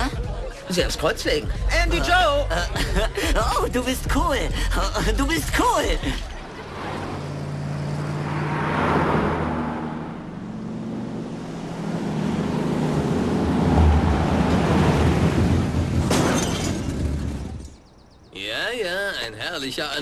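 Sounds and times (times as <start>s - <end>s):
van engine driving past: 6.4s - 16.1s.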